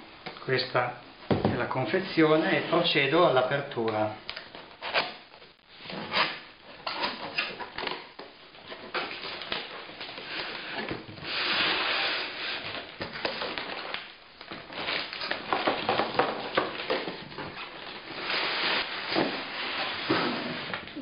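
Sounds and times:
cardboard lid scraping: 16.8 - 20.9.

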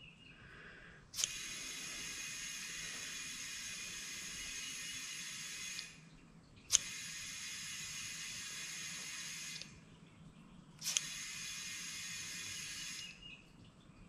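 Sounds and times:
air chuck trigger click: 1.2 - 2.8, 6.7 - 7.2, 10.8 - 13.1
compressed air hissing into tire: 1.2 - 5.9.

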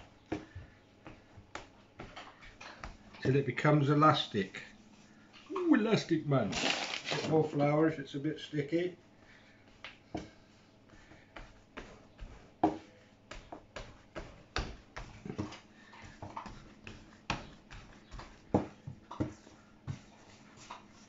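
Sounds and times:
dough thumping and slapping: 0.0 - 3.3, 11.0 - 21.0.

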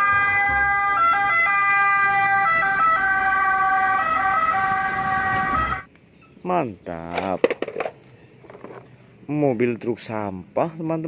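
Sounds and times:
ambulance siren two-tone: 0.0 - 5.9.

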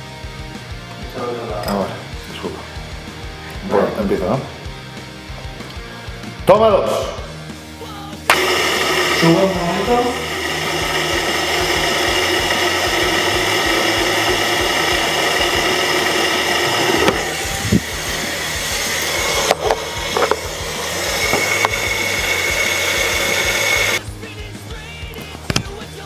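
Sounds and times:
small electric motor buzzing: 8.3 - 24.0.

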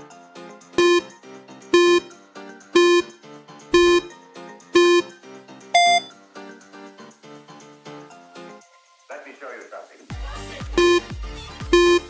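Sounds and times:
soft background music: 0.0 - 12.0
timer countdown beeps: 0.8 - 2.2, 2.8 - 4.2, 4.8 - 5.2, 5.8 - 6.2, 10.7 - 12.0.

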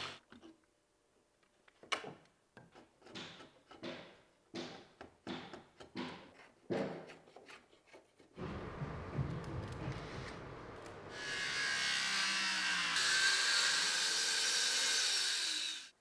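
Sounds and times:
chisel scraping timber: 2.6 - 8.4.

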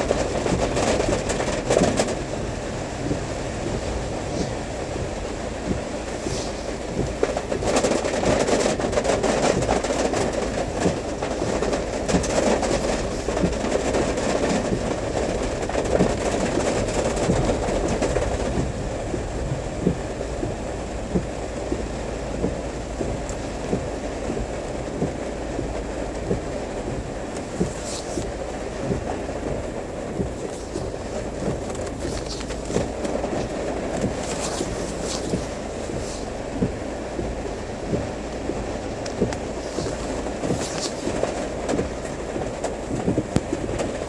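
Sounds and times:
vehicle rumbling in rain: 0.0 - 44.0
small irregular clicks: 5.7 - 21.8.

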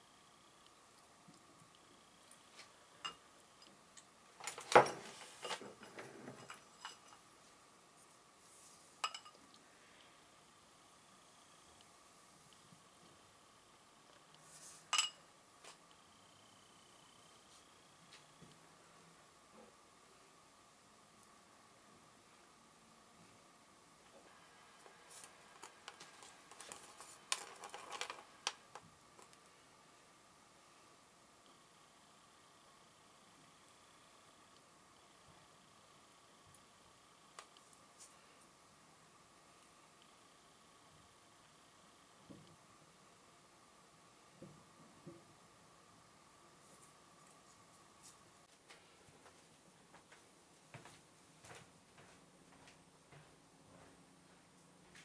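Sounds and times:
glass clink with rattle: 9.0 - 9.4, 14.9 - 15.2
faint clicks and crackles: 24.8 - 29.5.

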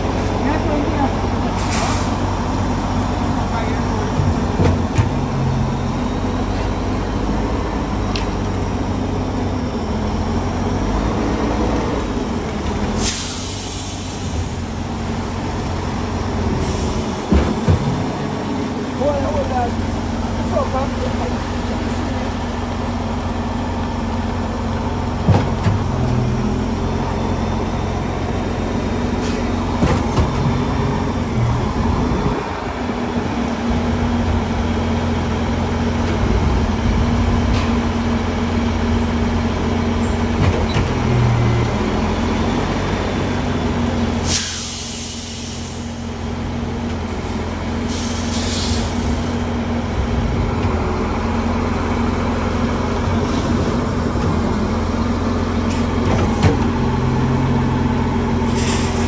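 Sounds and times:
concrete pump running: 0.0 - 10.6
loud hiss of air: 1.5 - 2.3, 12.9 - 14.8, 16.6 - 17.7, 44.2 - 46.1, 47.8 - 49.4, 58.4 - 59.0.

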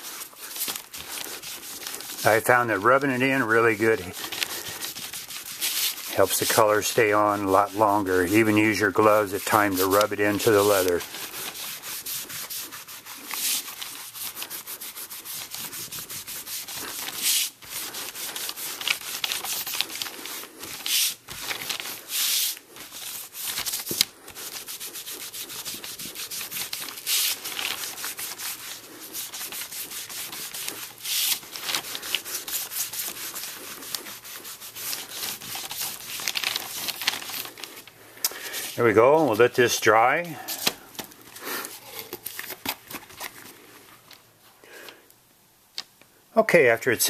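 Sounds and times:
wool pad scrubbing leather: 0.0 - 36.7.

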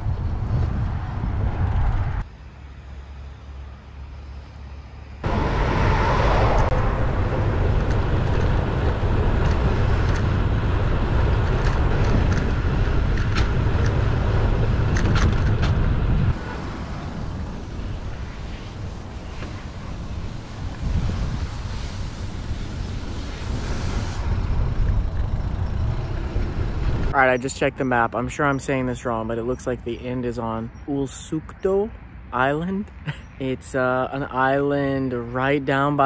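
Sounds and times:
rushing wind: 0.0 - 35.9
road traffic: 0.0 - 36.0
heavy low rumble: 5.2 - 27.8.

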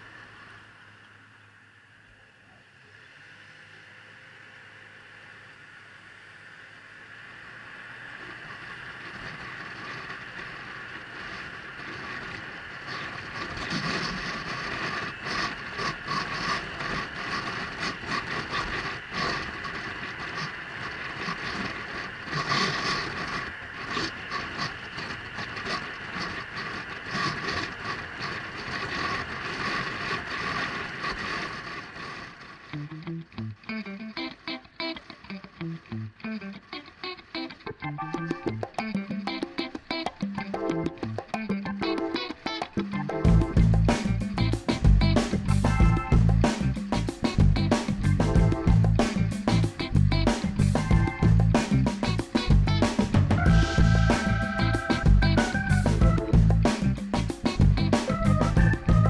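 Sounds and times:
scooter engine: 0.0 - 59.0
wind rush with buffeting: 8.0 - 32.9, 43.2 - 59.0.

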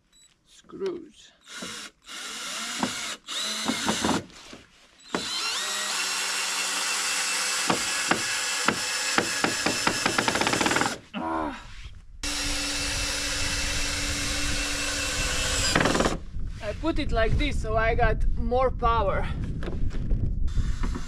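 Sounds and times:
power drill driving screws: 1.4 - 11.0, 12.2 - 16.2.

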